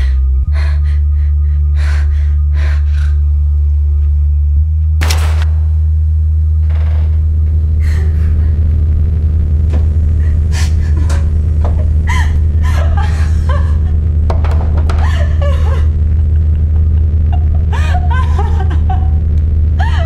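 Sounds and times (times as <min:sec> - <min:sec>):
low rumbling drone: 0:00.0 - 0:20.0
laughter-like voice sounds: 0:07.8 - 0:08.6, 0:10.2 - 0:14.2, 0:14.8 - 0:20.0.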